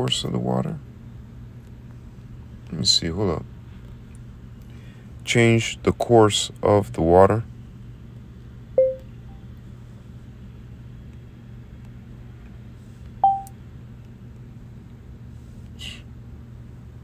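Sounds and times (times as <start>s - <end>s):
steady low hum: 0.0s - 17.0s
short electronic chimes: 8.8s - 9.0s, 13.2s - 13.5s.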